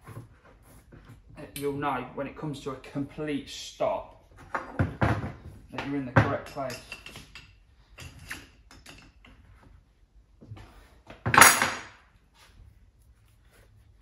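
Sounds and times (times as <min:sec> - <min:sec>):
metal tools clinking on workbench: 0:06.2 - 0:09.3.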